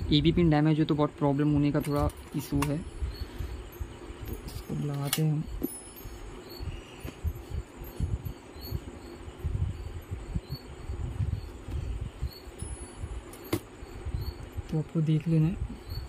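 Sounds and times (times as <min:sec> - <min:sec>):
faint high chirp: 0:01.4 - 0:16.0
sharp click: 0:01.8 - 0:02.8, 0:04.9 - 0:05.8.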